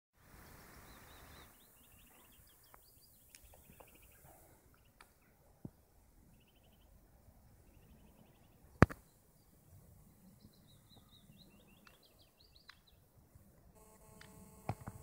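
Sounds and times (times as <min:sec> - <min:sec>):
faint birdsong: 0:00.2 - 0:15.0
small clicks and taps: 0:14.2 - 0:15.0.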